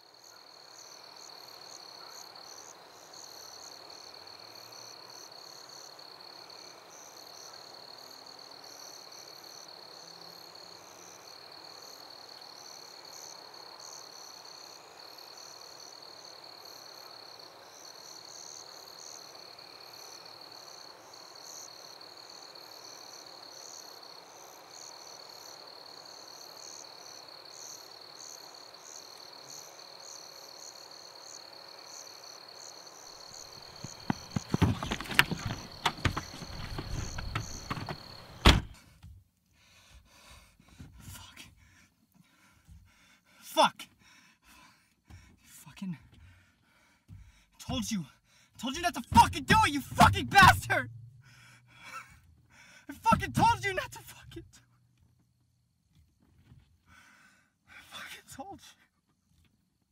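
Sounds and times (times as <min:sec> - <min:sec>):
insects trilling: 0:00.0 - 0:38.8
soft outdoor hush: 0:32.4 - 0:55.7.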